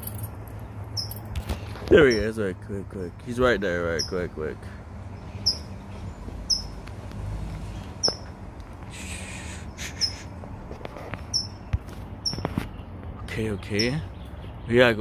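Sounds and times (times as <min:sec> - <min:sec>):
small bird chirping: 0:00.6 - 0:01.3, 0:01.9 - 0:02.4, 0:03.9 - 0:04.3, 0:05.1 - 0:06.8, 0:07.6 - 0:08.4, 0:09.0 - 0:10.3, 0:11.2 - 0:14.8.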